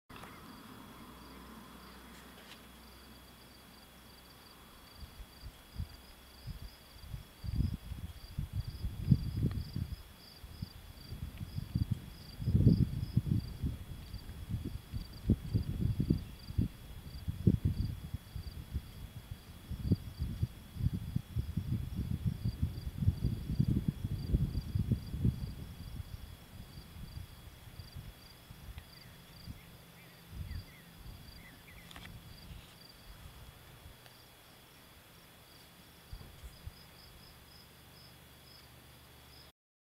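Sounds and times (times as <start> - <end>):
crickets chirping: 0.1 - 39.5
high insect trill: 0.1 - 39.5
wind buffeting microphone: 5.0 - 34.0.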